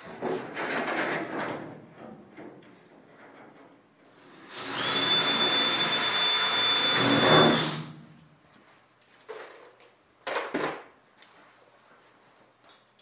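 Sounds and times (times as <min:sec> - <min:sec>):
cordless drill drilling metal: 0:04.2 - 0:07.9.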